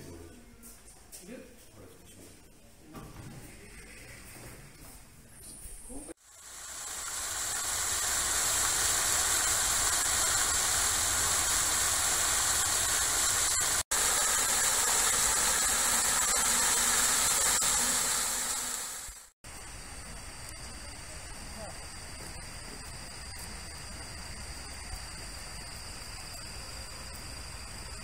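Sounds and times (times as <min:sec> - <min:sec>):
fountain water splashing: 0:06.3 - 0:19.4.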